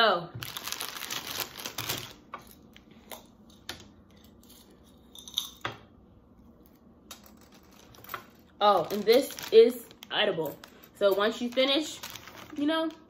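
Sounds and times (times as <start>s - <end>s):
plastic bag crinkling: 0.4s - 2.7s, 7.6s - 13.0s.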